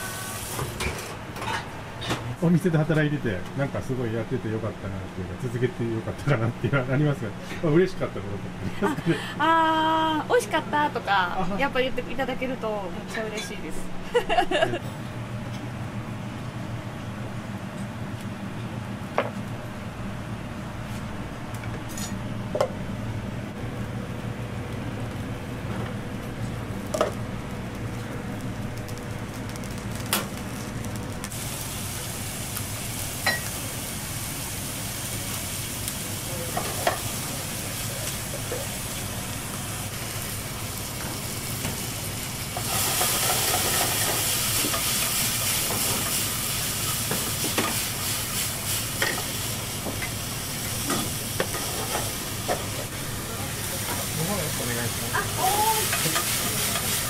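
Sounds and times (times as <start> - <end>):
food sizzling in a pan: 0.0 - 0.8, 26.8 - 57.0
low kitchen hum: 0.0 - 57.0.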